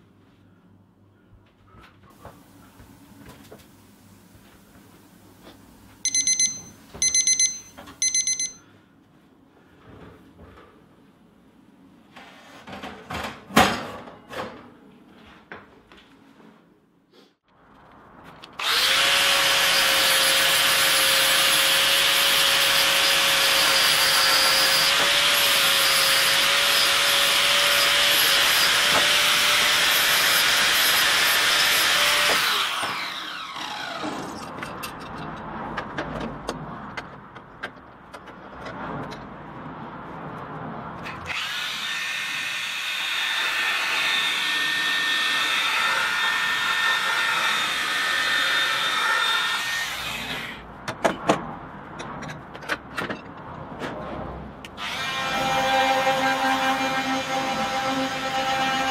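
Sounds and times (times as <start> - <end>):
angle grinder on steel: 18.6 - 34.4, 41.3 - 50.6, 54.8 - 58.9.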